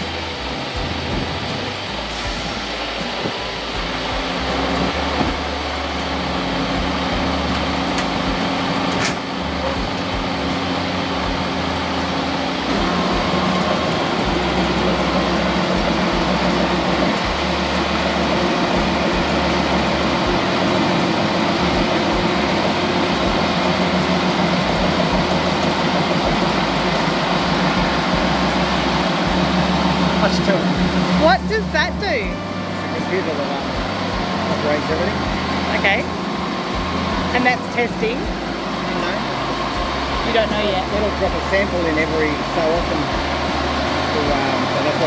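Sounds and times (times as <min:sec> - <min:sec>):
background music: 0:00.0 - 0:45.0
pump running: 0:00.0 - 0:45.0
truck engine running: 0:00.0 - 0:45.0.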